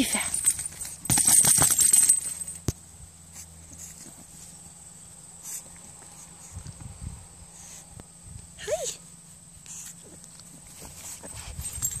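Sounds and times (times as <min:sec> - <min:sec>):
puppy snuffling in grass: 0:03.2 - 0:08.2, 0:09.0 - 0:12.0.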